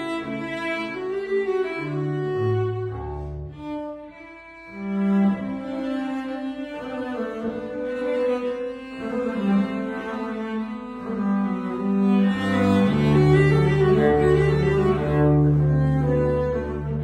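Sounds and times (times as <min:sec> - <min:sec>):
bowed cello and double bass: 0:00.0 - 0:17.0.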